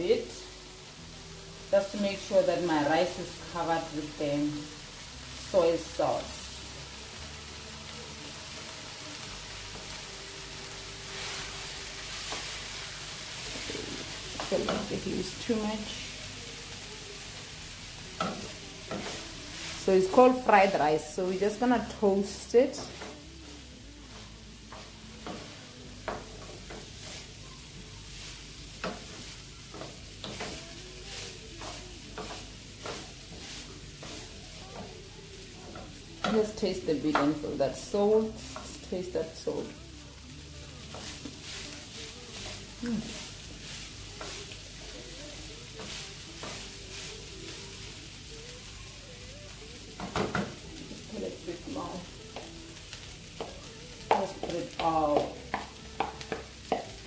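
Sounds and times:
food sizzling in frying pan: 0.0 - 57.0
spatula scraping frying pan: 18.2 - 20.8, 28.2 - 34.6
wooden spoon scraping and stirring: 18.2 - 22.0, 22.7 - 27.5, 28.2 - 35.0, 40.8 - 47.6.

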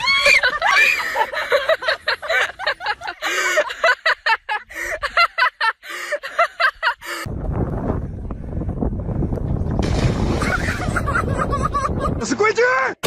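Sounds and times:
person laughing hard: 0.0 - 7.3, 10.4 - 12.2.

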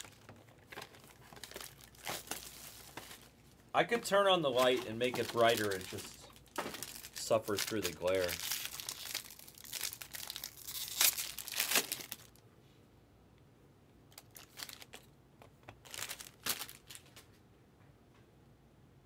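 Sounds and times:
plastic wrapper crinkling and tearing: 0.0 - 12.4, 14.1 - 15.1, 15.7 - 17.3.

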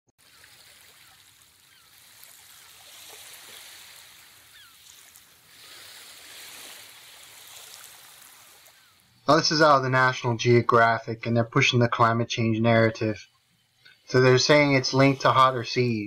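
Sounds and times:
faint bird chirps: 0.2 - 2.7, 4.4 - 5.0, 8.6 - 9.3
ocean waves washing on shore: 0.2 - 10.9, 14.0 - 16.0.

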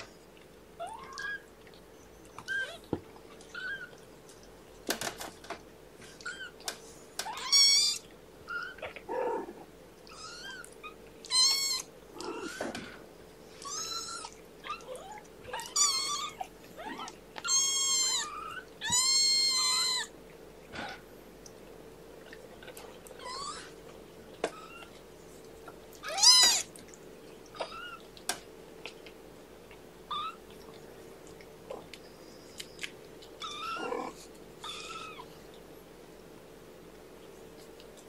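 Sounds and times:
kittens mewing: 6.1 - 20.1, 26.0 - 26.7, 33.4 - 35.3.

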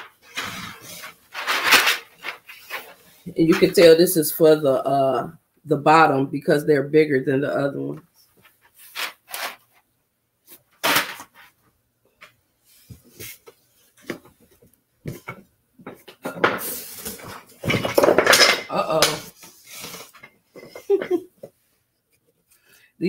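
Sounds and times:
rustling: 0.0 - 3.9, 8.1 - 11.6, 12.6 - 22.7
wooden parts knocking and clattering: 1.3 - 2.9, 15.1 - 19.2.

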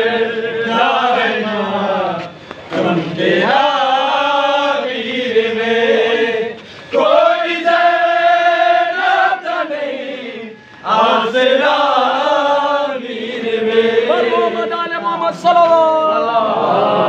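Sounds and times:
man chanting a lament: 10.3 - 17.0.

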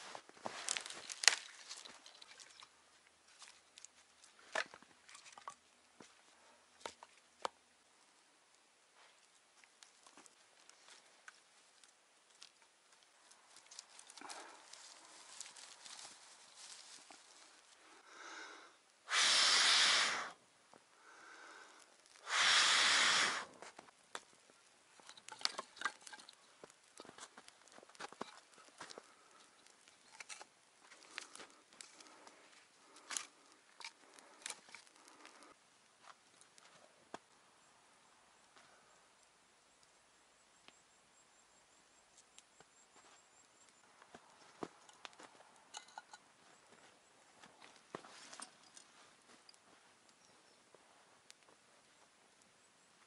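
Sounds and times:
kindling crackling and popping: 0.0 - 5.8, 6.8 - 37.4, 43.4 - 53.0
twigs snapping: 0.4 - 2.6, 9.6 - 17.8, 25.0 - 37.2
person breathing in: 17.8 - 20.4, 21.0 - 23.5
person blowing on fire: 18.1 - 20.4, 21.2 - 23.7.

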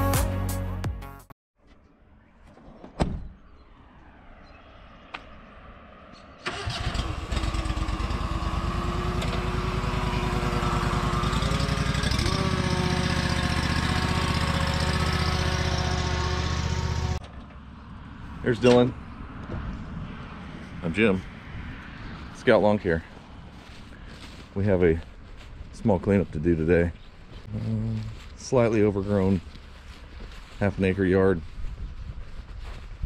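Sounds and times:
mower engine running: 6.5 - 17.4.

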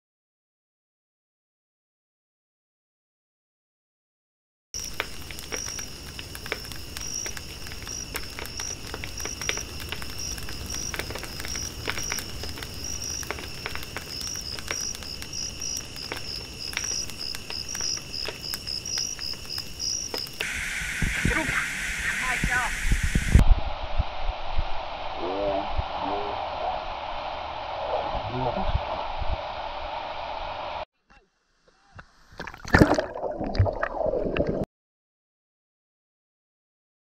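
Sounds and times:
sharp clicks and crackles: 4.8 - 21.5
insects trilling: 4.8 - 23.4.

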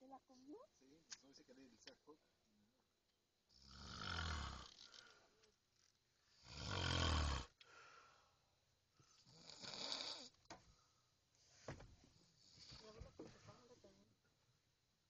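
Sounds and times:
man snoring: 3.5 - 5.1, 6.4 - 7.6, 9.3 - 10.4.

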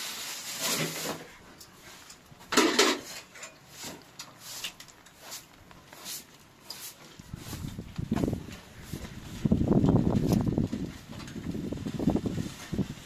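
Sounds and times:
kitchenware clattering: 2.5 - 3.6.

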